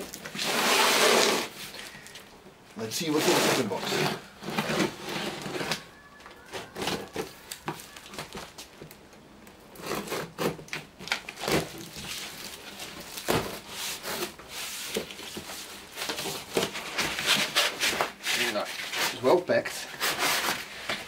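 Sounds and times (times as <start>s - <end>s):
hands scraping cardboard box: 0.2s - 1.8s, 2.9s - 5.9s, 9.8s - 10.8s, 11.4s - 21.0s.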